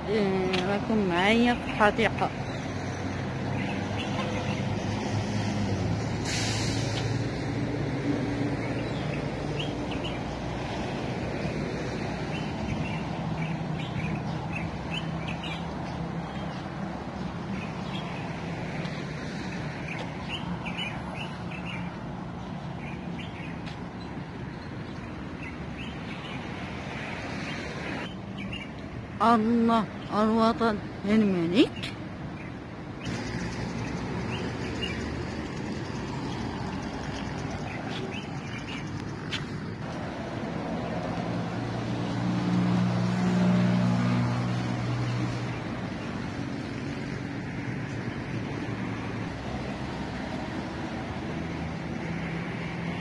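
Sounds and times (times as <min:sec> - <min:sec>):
low traffic hum: 0:00.0 - 0:53.0
brief hiss: 0:06.2 - 0:07.1
small birds chirping: 0:08.6 - 0:10.4, 0:12.2 - 0:39.9.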